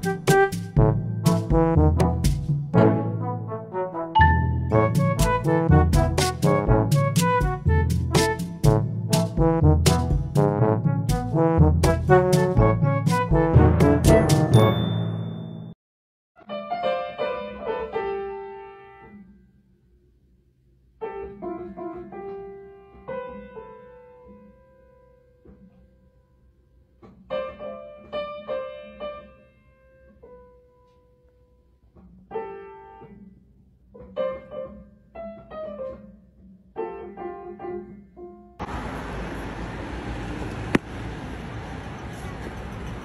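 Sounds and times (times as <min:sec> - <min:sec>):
piano notes played by cat: 0:00.0 - 0:15.7, 0:16.4 - 0:19.2.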